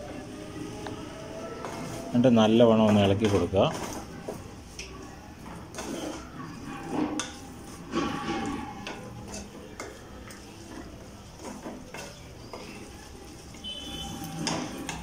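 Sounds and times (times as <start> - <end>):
spoon scraping metal pot: 5.7 - 12.9, 13.6 - 15.0.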